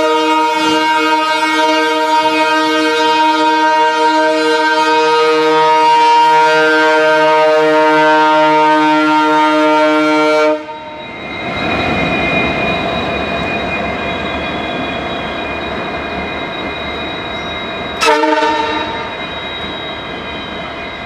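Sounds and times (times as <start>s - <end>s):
locomotive air horn: 0.0s - 10.8s, 18.0s - 19.2s
train running on rails: 0.0s - 21.0s.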